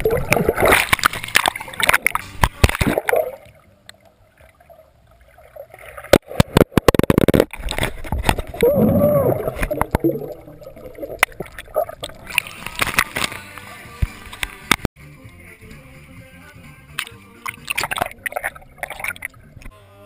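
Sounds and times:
water bubbling underwater: 0.0s - 13.0s, 17.5s - 19.7s
underwater voice-like hum: 8.5s - 11.1s.

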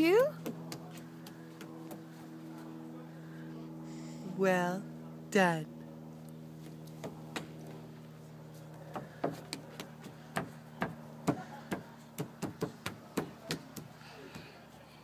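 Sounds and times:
steady low hum: 0.0s - 15.0s
bare feet slapping on wooden deck: 0.2s - 2.4s, 6.6s - 7.9s, 8.6s - 14.6s.

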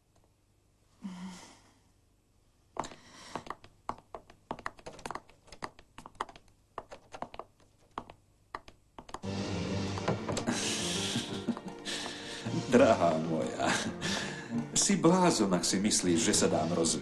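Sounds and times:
sharp clicks and taps: 2.8s - 9.3s.

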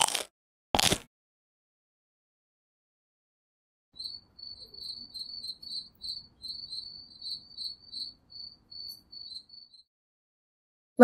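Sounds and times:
crickets chirping: 4.0s - 9.8s.

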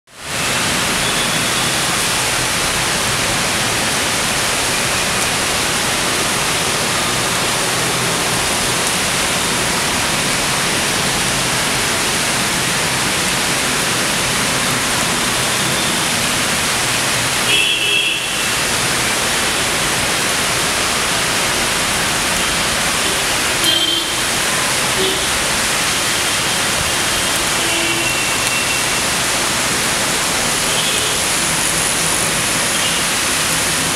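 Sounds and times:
heavy rain falling: 0.1s - 33.9s.

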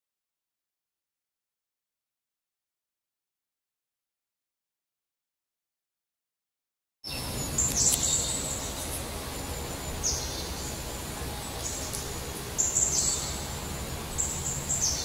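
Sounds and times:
songbird singing: 7.0s - 15.0s
low background noise: 7.1s - 15.0s.

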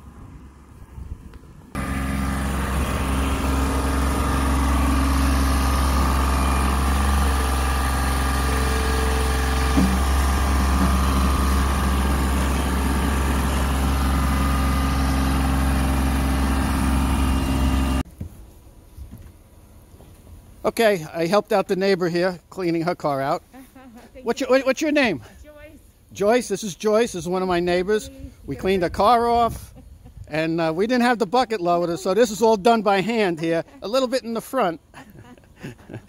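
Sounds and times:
vehicle engine idling: 1.8s - 18.0s.

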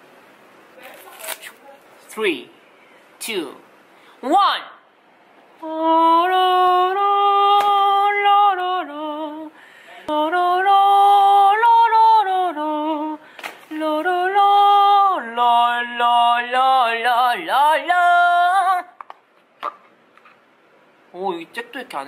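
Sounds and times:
person singing wordlessly: 5.6s - 19.0s.

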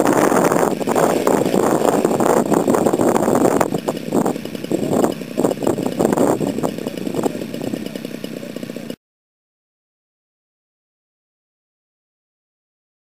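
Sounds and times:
small engine idling unevenly: 0.1s - 9.0s.

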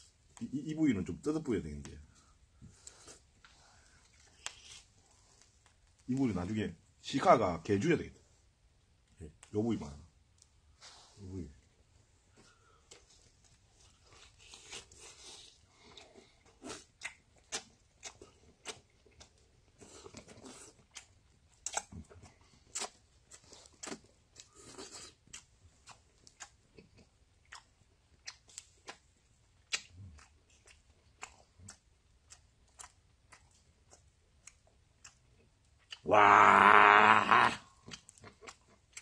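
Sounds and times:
person chewing meat off bone: 12.8s - 39.0s.

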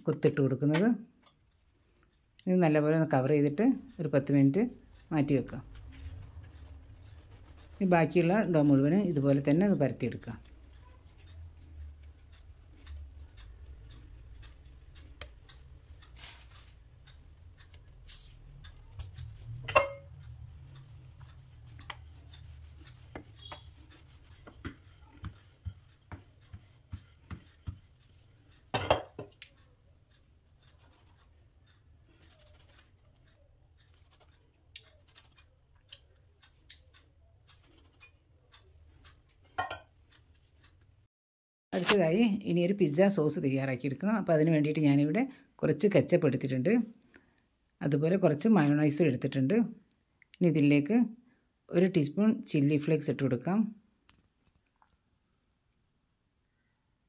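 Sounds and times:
dough rubbing on counter: 4.6s - 13.3s, 15.8s - 19.6s, 20.2s - 28.7s, 29.5s - 35.5s.

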